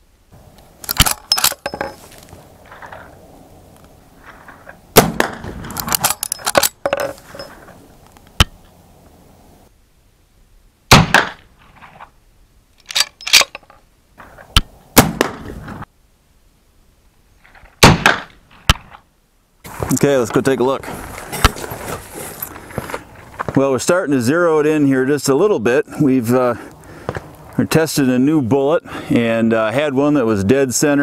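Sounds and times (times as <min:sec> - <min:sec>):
rifle action metallic clicks: 0:00.8 - 0:02.0, 0:05.2 - 0:07.5, 0:12.8 - 0:13.8
rifle shots: 0:04.9 - 0:06.8, 0:10.9 - 0:11.4, 0:15.0 - 0:15.5, 0:17.8 - 0:18.9.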